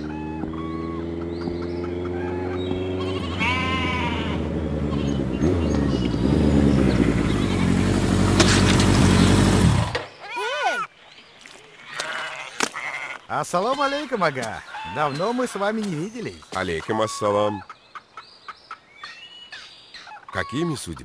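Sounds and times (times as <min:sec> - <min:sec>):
motorcycle engine running: 0:00.0 - 0:10.0
animal bleating: 0:02.4 - 0:05.2, 0:11.8 - 0:15.1.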